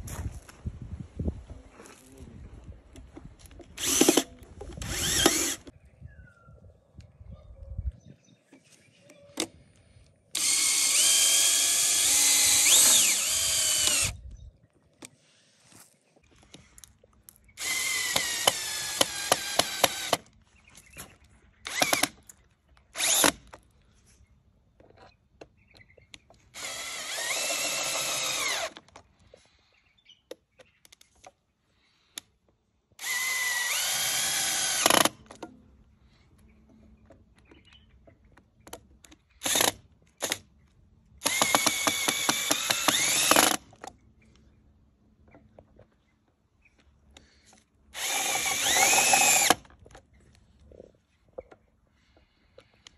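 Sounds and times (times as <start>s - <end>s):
rapid clicking of drill: 3.7s - 5.7s, 10.3s - 14.2s, 17.6s - 20.3s, 21.7s - 22.3s, 23.0s - 23.5s, 26.5s - 28.8s, 33.0s - 35.4s, 39.4s - 40.4s, 41.2s - 43.9s, 48.0s - 49.7s
cordless drill motor whine: 3.8s - 5.7s, 10.3s - 14.3s, 17.6s - 20.3s, 21.7s - 22.2s, 23.0s - 23.4s, 26.5s - 28.8s, 33.0s - 35.2s, 39.4s - 40.4s, 41.2s - 43.6s, 48.0s - 49.7s.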